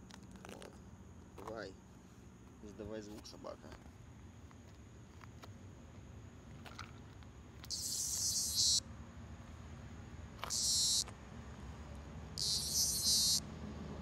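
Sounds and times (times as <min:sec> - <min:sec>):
cicada buzzing: 0:07.5 - 0:08.9, 0:09.9 - 0:11.2, 0:12.3 - 0:13.6.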